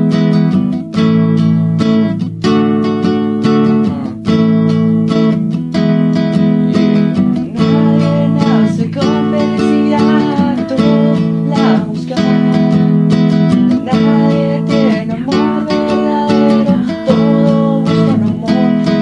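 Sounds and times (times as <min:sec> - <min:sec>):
strummed acoustic guitar: 0:00.0 - 0:19.0.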